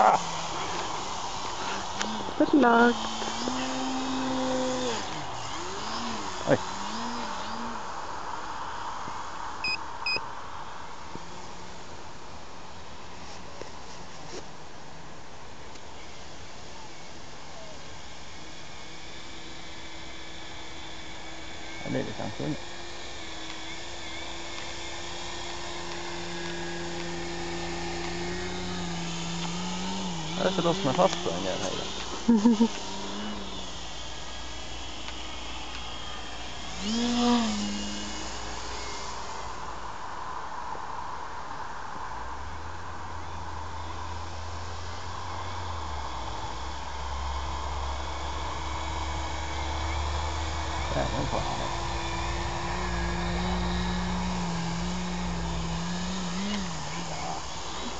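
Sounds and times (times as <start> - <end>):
model plane motor whining: 0.0 - 8.0, 15.8 - 40.0, 43.1 - 57.9
low wind rumble: 38.0 - 56.3
lower tone: 42.2 - 57.9.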